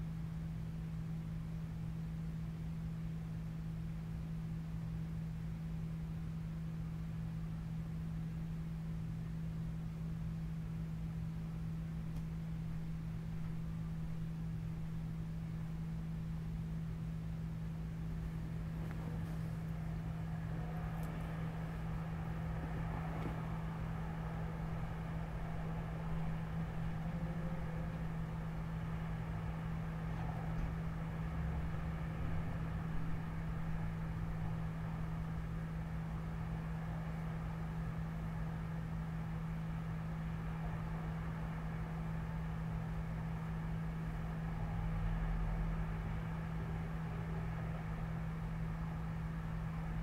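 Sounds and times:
steady low hum: 0:00.0 - 0:50.0
distant city traffic: 0:11.6 - 0:50.0.

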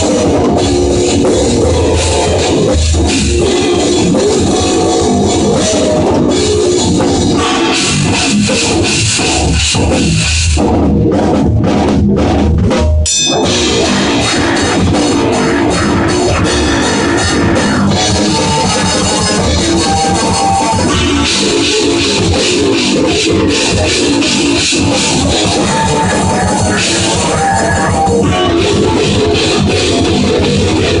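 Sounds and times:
drum kit: 0:00.0 - 0:31.0
electric bass guitar: 0:00.0 - 0:31.0
rock band playing: 0:00.0 - 0:31.0
cymbal hits: 0:13.1 - 0:14.0.

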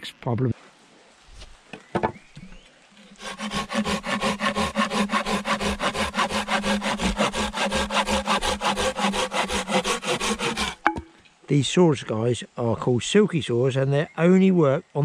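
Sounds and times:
hand saw rasping through wood: 0:03.2 - 0:10.8.

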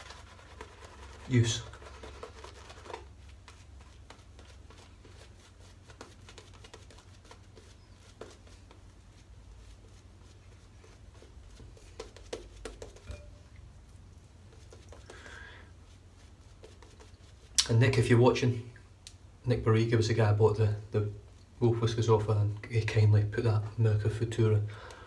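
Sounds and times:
shaving brush crackling lather: 0:00.0 - 0:13.1, 0:15.8 - 0:17.8.

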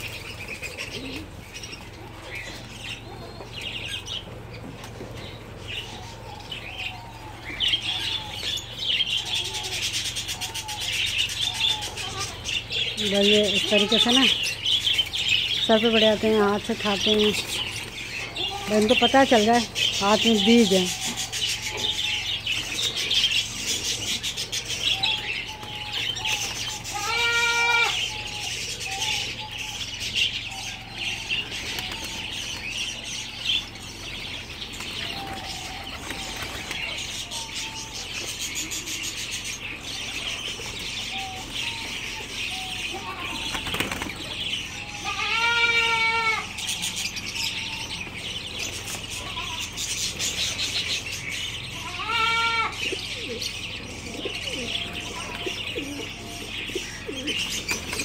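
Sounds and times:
birds chirping: 0:00.0 - 0:58.0
pigeons flapping wings: 0:34.7 - 0:37.0, 0:43.4 - 0:44.4, 0:57.6 - 0:58.0.

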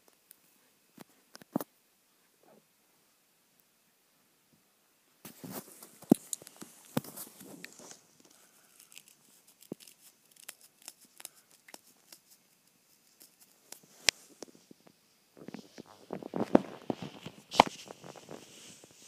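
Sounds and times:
fabric rustling and scratching: 0:05.3 - 0:08.2, 0:15.4 - 0:19.0
small sharp clicks and crackles: 0:05.7 - 0:18.8.

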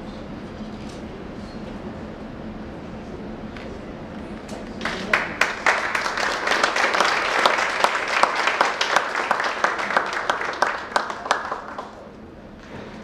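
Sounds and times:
crowd applause: 0:04.8 - 0:12.2.

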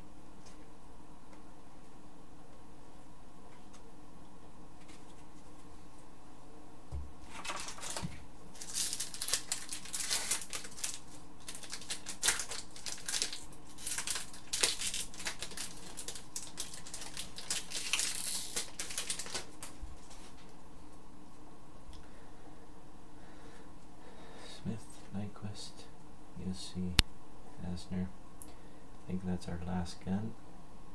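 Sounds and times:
cards being flipped through: 0:07.3 - 0:20.5
foil wrapper crinkling: 0:07.3 - 0:20.5.

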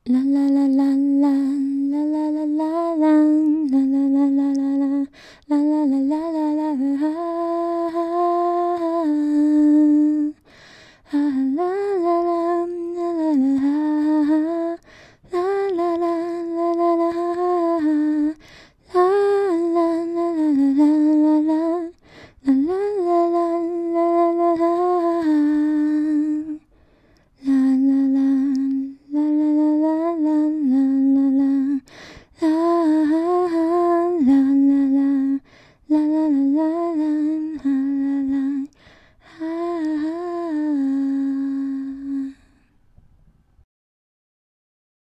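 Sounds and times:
person humming a tune: 0:00.0 - 0:10.4, 0:27.4 - 0:42.7.

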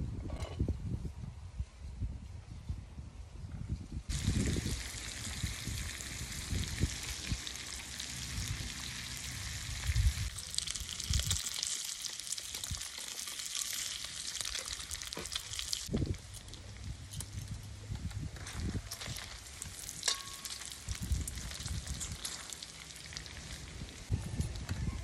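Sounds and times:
bacon sizzling: 0:04.1 - 0:16.5, 0:19.1 - 0:24.1.

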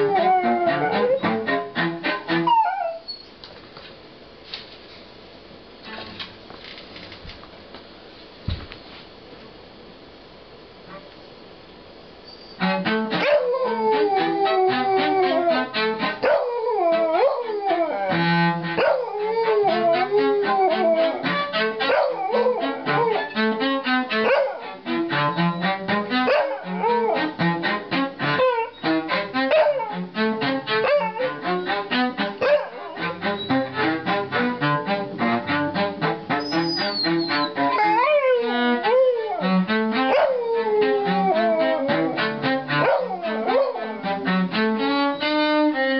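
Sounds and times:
dog howling: 0:00.0 - 0:01.4, 0:02.4 - 0:03.1, 0:13.2 - 0:18.2, 0:18.8 - 0:23.4, 0:24.2 - 0:24.8, 0:26.2 - 0:27.3, 0:28.4 - 0:28.8, 0:29.4 - 0:30.0, 0:30.8 - 0:31.4, 0:32.4 - 0:33.6, 0:36.5 - 0:44.2
cello playing: 0:00.0 - 0:03.0, 0:12.6 - 0:45.9.

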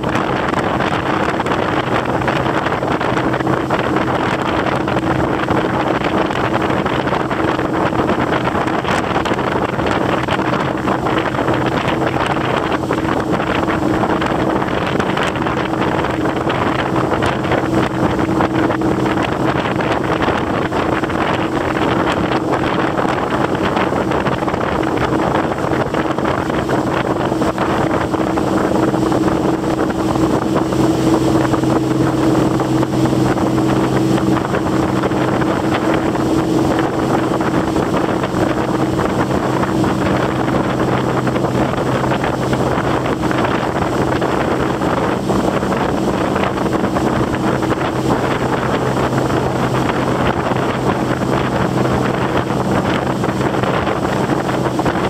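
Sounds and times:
motorboat engine hum: 0:00.0 - 0:55.0
wind buffeting microphone: 0:00.0 - 0:55.0.

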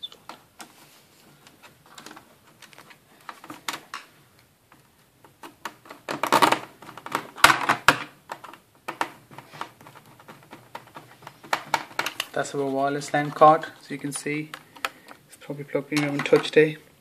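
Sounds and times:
clattering on laptop case: 0:05.4 - 0:12.3.

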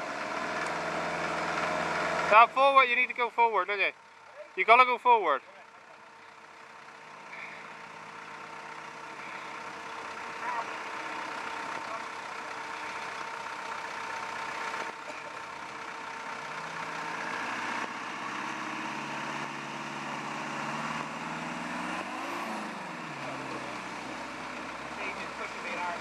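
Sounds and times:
engine running and revving: 0:00.0 - 0:03.8, 0:05.6 - 0:26.0.

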